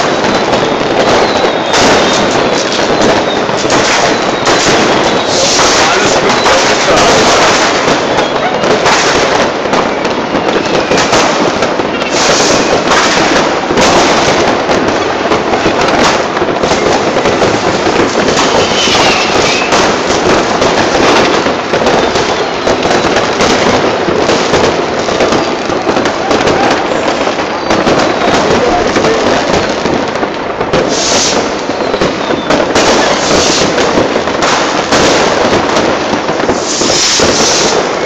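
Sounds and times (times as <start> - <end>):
faint firework whistle: 0.0 - 14.5, 15.6 - 20.0, 20.6 - 23.8, 30.8 - 34.1, 36.4 - 38.0
fireworks banging and crackling: 0.0 - 38.0.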